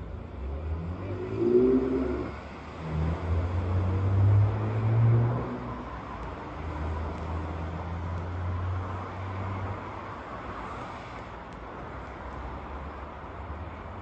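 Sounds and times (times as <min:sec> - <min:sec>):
low engine hum: 0:00.0 - 0:10.6
road noise hiss: 0:00.0 - 0:14.0.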